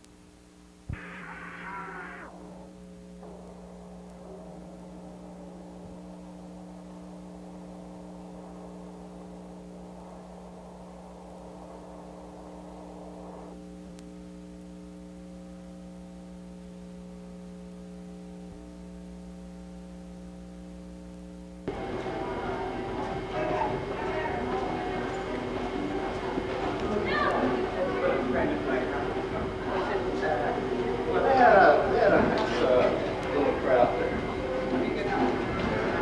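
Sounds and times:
electrical mains hum: 0:00.0 - 0:36.0.

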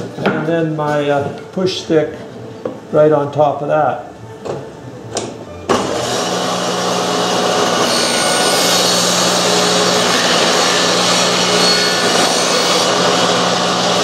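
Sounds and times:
table saw motor hum: 0:05.7 - 0:14.0
saw blade rasping through wood: 0:06.0 - 0:14.0.

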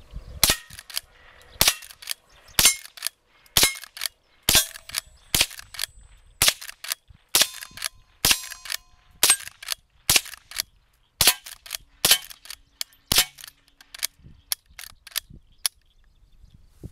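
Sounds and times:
rifle lever clicks: 0:00.4 - 0:15.8
rifle shots: 0:01.6 - 0:05.8, 0:06.4 - 0:10.6, 0:11.2 - 0:14.0
bullets ringing on steel targets: 0:02.6 - 0:03.0, 0:03.6 - 0:03.9, 0:04.5 - 0:05.0, 0:07.4 - 0:09.6, 0:12.1 - 0:12.4, 0:13.0 - 0:13.5.

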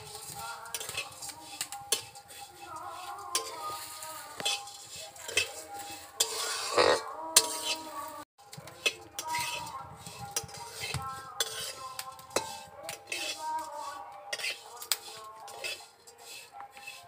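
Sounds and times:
metal spatula scraping a pan: 0:00.0 - 0:17.0.

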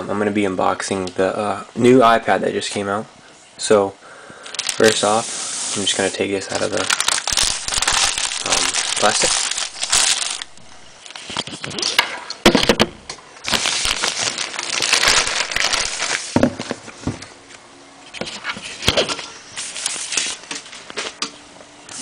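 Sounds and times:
plastic bag crinkling: 0:04.4 - 0:12.0, 0:13.4 - 0:16.4.

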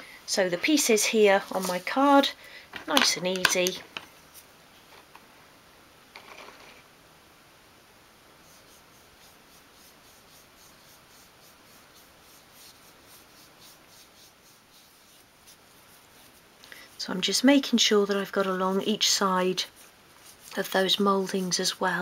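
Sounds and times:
paintbrush strokes on wood: 0:08.4 - 0:22.0.

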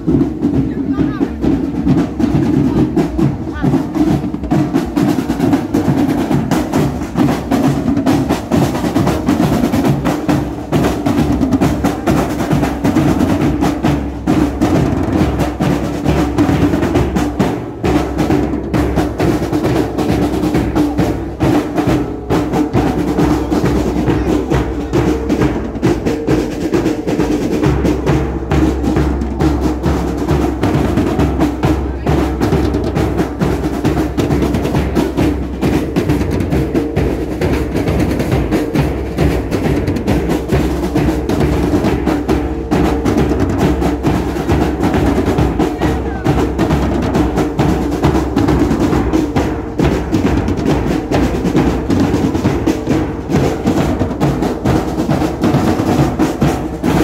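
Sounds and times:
marching drums playing: 0:00.0 - 0:57.0.

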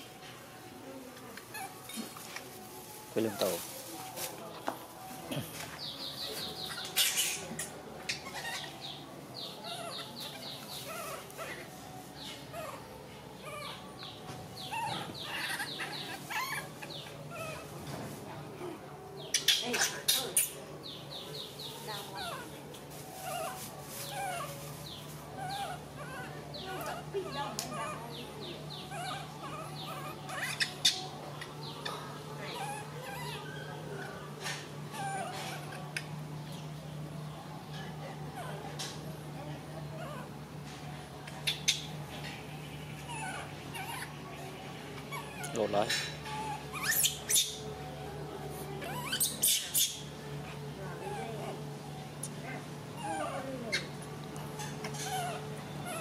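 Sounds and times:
steady low hum: 0:03.7 - 0:56.0
baby monkeys squeaking: 0:05.8 - 0:12.8, 0:13.4 - 0:17.7, 0:19.2 - 0:22.6, 0:23.2 - 0:36.1, 0:41.2 - 0:47.8, 0:48.8 - 0:51.6, 0:52.3 - 0:56.0
animal high-pitched chirps: 0:46.3 - 0:47.6, 0:48.9 - 0:50.1.

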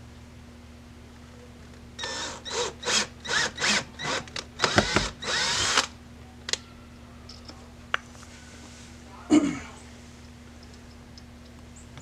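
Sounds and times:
cordless drill whining in bursts: 0:02.0 - 0:05.9.

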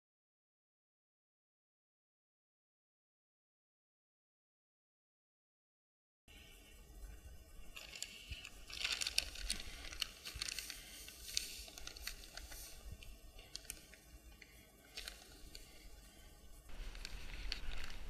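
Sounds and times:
plastic sack crinkling: 0:07.7 - 0:16.0, 0:16.7 - 0:18.0
dry mix pouring with gritty patter: 0:07.7 - 0:18.0.

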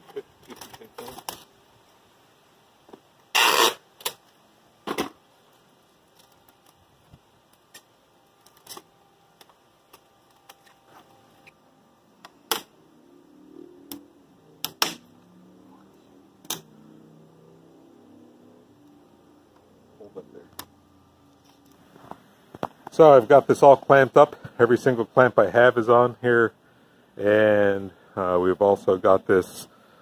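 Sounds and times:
rustle: 0:00.0 - 0:20.4.

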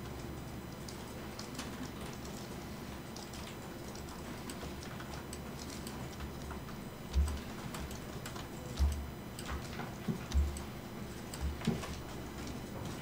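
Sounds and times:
mouse and keyboard clicking: 0:03.2 - 0:10.7.

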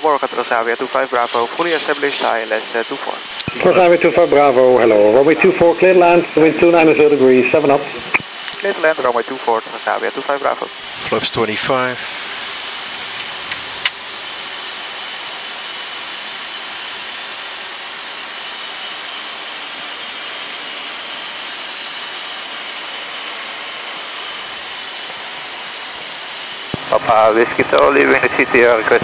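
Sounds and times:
rushing hiss of air: 0:01.2 - 0:02.5, 0:11.9 - 0:13.2.

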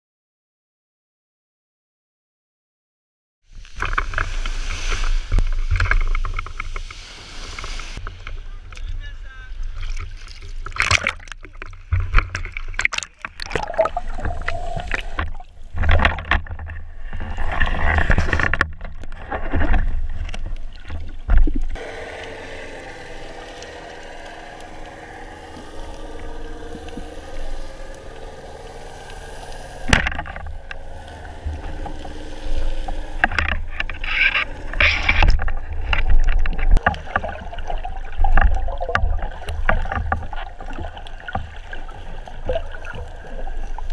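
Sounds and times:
water splashing and sloshing: 0:03.5 - 0:43.9
muffled underwater hush: 0:21.8 - 0:43.8.

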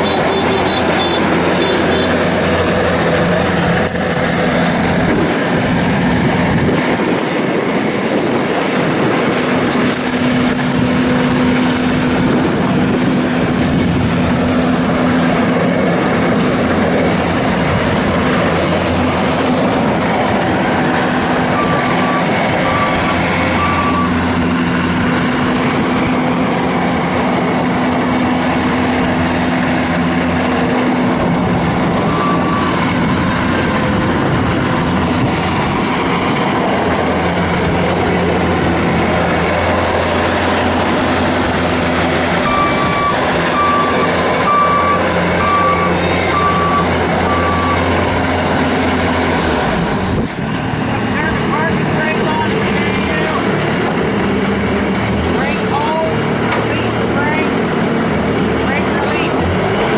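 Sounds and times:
diesel loader engine running: 0:00.0 - 0:59.9
machine driving on gravel: 0:00.0 - 0:59.9
backup alarm beeps: 0:21.6 - 0:24.2, 0:42.5 - 0:47.9.

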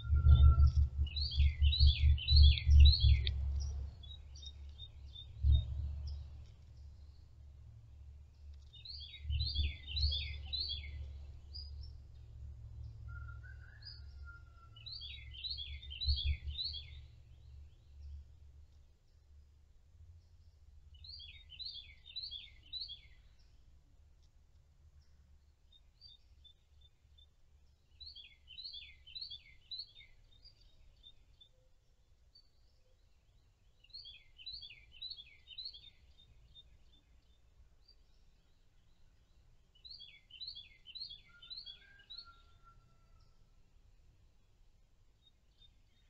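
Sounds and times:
songbird whistling: 0:00.0 - 0:03.4, 0:13.1 - 0:17.0, 0:39.9 - 0:43.0
steady low hum: 0:00.0 - 0:08.6.

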